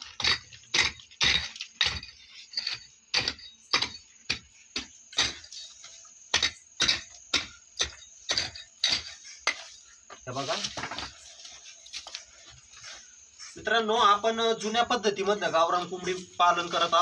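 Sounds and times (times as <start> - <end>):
gravel clattering: 0.0 - 14.4
pickaxe striking stony earth: 6.3 - 9.7.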